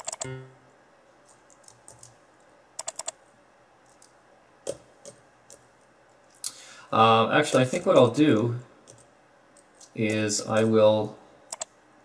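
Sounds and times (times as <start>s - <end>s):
computer keyboard keystrokes clicking: 0.0s - 0.3s, 2.8s - 3.2s.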